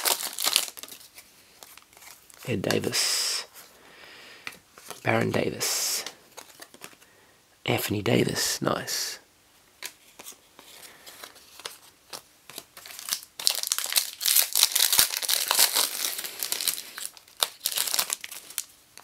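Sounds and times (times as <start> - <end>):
foil wrapper crinkling and tearing: 0.0 - 2.4, 11.1 - 19.0.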